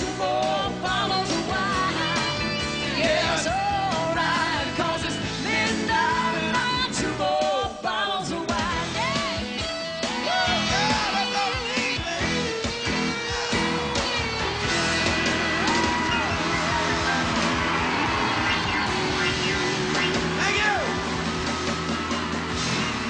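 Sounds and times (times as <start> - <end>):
person singing: 0.0 - 9.4, 10.1 - 17.3
rock band playing: 0.0 - 23.0.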